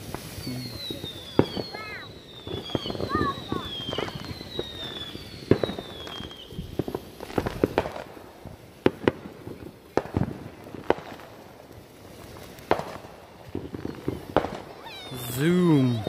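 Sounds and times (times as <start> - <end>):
firework pops and crackles: 0.0 - 16.0
firework whistle falling in pitch: 0.3 - 6.4.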